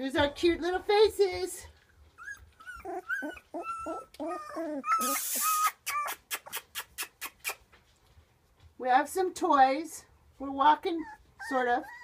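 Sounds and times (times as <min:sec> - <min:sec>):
puppies whimpering: 0:01.9 - 0:07.5, 0:10.8 - 0:12.0.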